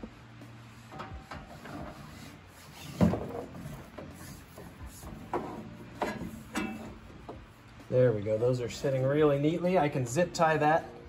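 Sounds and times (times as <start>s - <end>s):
rubber hoses rubbing: 0.8s - 7.0s.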